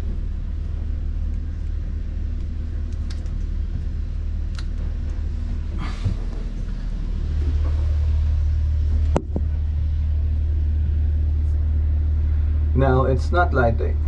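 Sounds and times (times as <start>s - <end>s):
diesel engine rumble: 0.0s - 14.0s.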